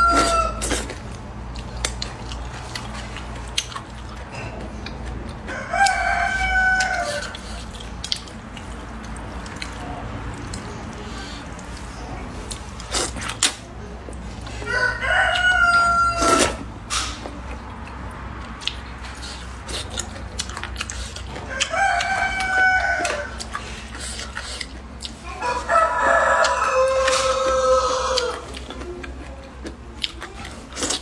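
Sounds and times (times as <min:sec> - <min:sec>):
rooster crowing: 0:00.0 - 0:00.7, 0:05.5 - 0:07.4, 0:14.6 - 0:16.6, 0:21.4 - 0:23.4, 0:25.3 - 0:28.5
person slurping noodles: 0:00.0 - 0:01.1.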